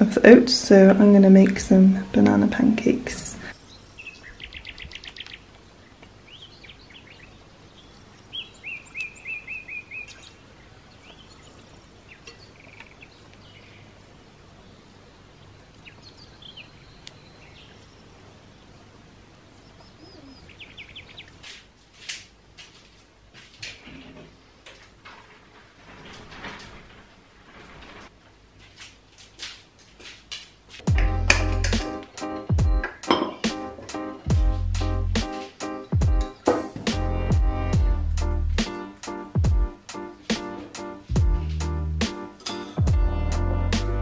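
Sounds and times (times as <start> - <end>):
small songbirds chirping: 3.5 - 21.5, 30.9 - 44.0
bird trill: 6.3 - 10.4
sharp clicks and knocks: 30.3 - 32.1.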